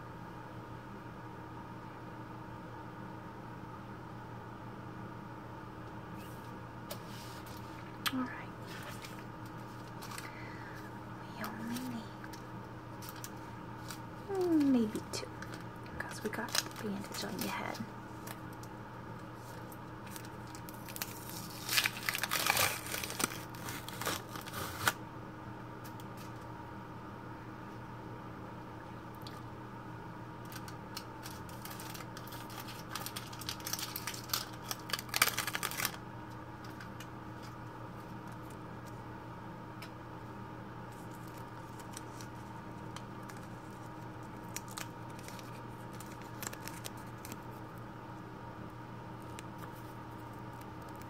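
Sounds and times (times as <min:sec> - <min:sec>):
paper wrapper crinkling and tearing: 0:08.3 - 0:10.8, 0:11.4 - 0:18.7, 0:19.4 - 0:25.0, 0:30.4 - 0:36.0, 0:40.9 - 0:47.7, 0:49.2 - 0:51.0.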